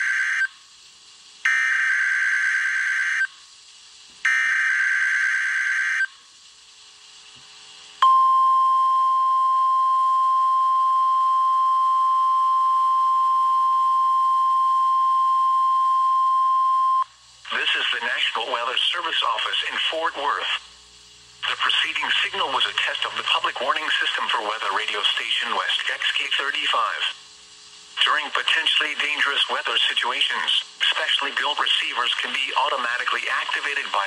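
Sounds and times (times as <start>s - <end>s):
steady warning alarm tone: 0.0s - 0.6s, 1.5s - 3.3s, 4.3s - 6.1s, 8.0s - 17.1s
raspy data tone bursts: 1.4s - 3.3s, 4.2s - 6.2s, 21.4s - 27.2s.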